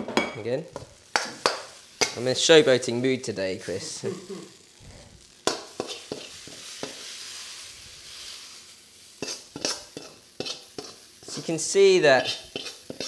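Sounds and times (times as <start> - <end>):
noodles sizzling: 0.4 - 13.0
metal ladle scraping a wok: 5.5 - 7.2, 9.2 - 11.4, 12.2 - 13.0.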